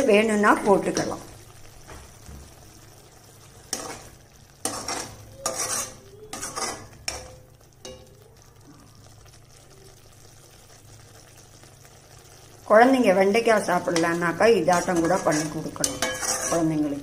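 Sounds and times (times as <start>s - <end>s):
ladle scraping metal pan: 3.7s - 7.4s, 14.7s - 17.0s.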